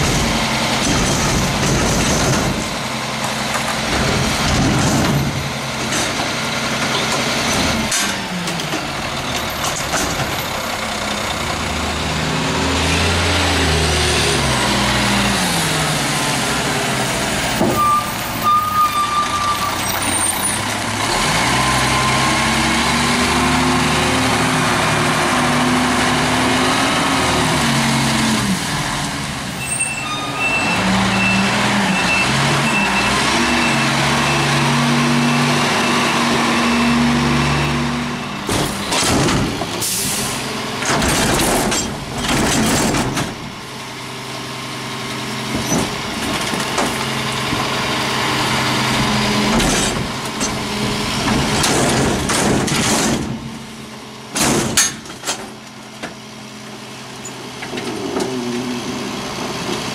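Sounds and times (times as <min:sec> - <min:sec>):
reversing beeper: 0:17.6 - 0:20.6, 0:29.6 - 0:37.2.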